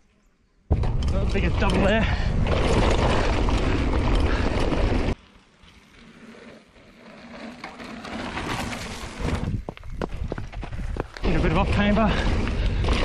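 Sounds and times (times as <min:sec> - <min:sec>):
bike tyres on dirt: 0:00.7 - 0:13.0
wind buffeting microphone: 0:09.2 - 0:13.0.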